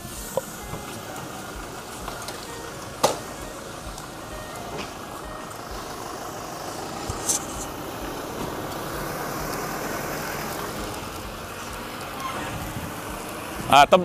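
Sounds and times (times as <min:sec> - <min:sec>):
pickup engine idling: 0:00.0 - 0:14.0.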